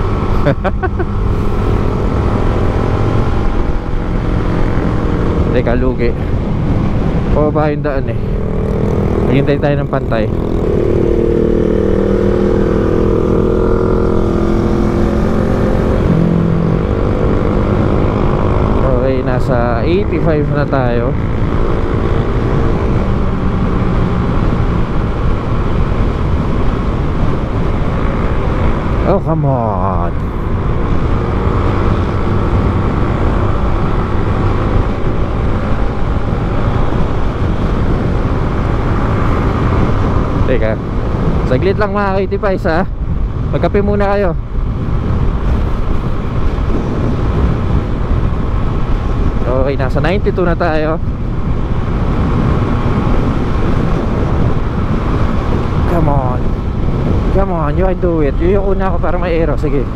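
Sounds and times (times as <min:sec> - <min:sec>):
scooter engine high-revving drone: 0:00.0 - 0:07.4, 0:08.0 - 0:42.3
wind rumble on microphone: 0:00.0 - 0:59.9.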